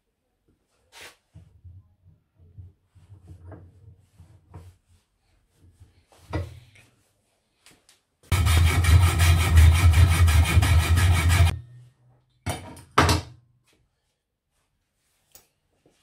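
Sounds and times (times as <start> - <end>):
hacksaw cutting metal: 8.3 - 11.6.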